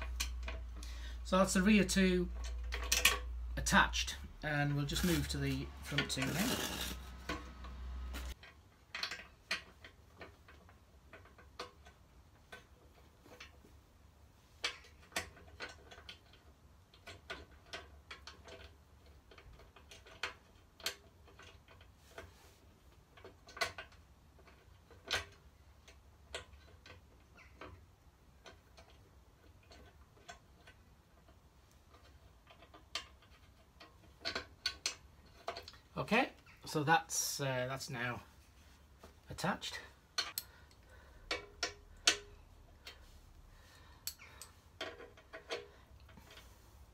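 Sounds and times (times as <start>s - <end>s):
metal tool clicking on bolts: 39.7s - 43.1s, 44.0s - 46.4s.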